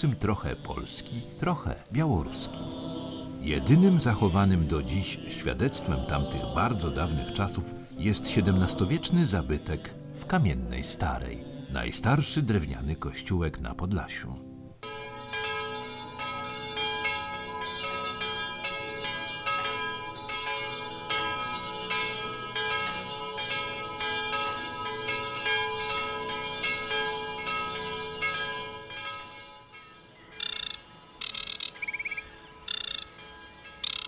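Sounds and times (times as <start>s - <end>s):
church bells ringing: 0.0s - 11.2s, 14.8s - 34.0s
high bird calls: 30.0s - 34.0s.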